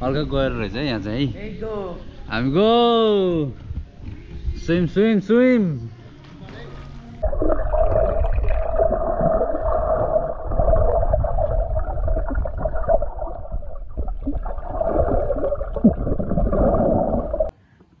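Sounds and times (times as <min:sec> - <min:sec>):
muffled underwater churning: 0:07.2 - 0:17.5
steady underwater hum: 0:07.2 - 0:17.6.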